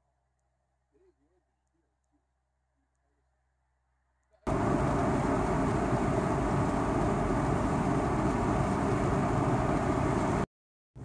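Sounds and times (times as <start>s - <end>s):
car road noise from inside: 4.5s - 10.4s.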